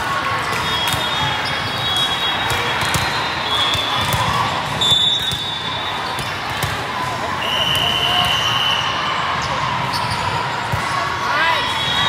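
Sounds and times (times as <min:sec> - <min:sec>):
hum of players and spectators: 0:00.0 - 0:12.0
referee whistles: 0:00.6 - 0:06.4, 0:07.4 - 0:09.0, 0:11.4 - 0:12.0.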